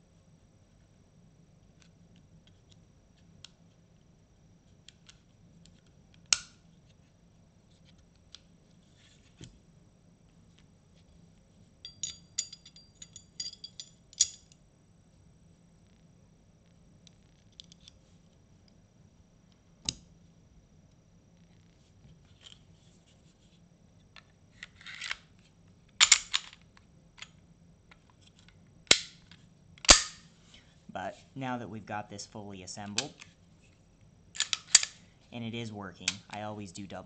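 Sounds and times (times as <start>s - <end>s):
pistol parts clicking: 11.9s - 14.6s, 26.0s - 26.6s, 28.9s - 30.2s, 34.4s - 35.0s.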